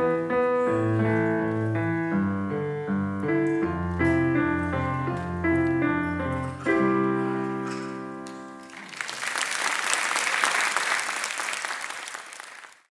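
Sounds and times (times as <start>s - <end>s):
audience applauding: 8.6s - 12.9s.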